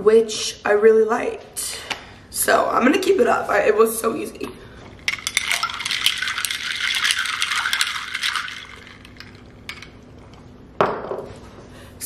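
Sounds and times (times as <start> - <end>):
spoon clinking against glass: 5.0 - 10.0.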